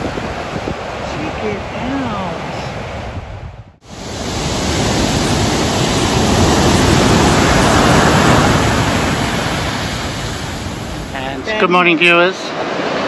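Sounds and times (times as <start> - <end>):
wave breaking on shore: 3.8 - 13.0.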